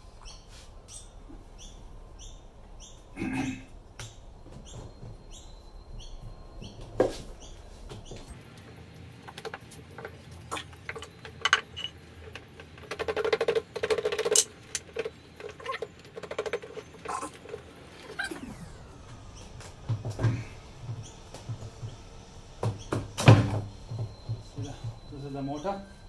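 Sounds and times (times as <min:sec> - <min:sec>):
metallic clicks and rattling: 0:08.6 - 0:18.2.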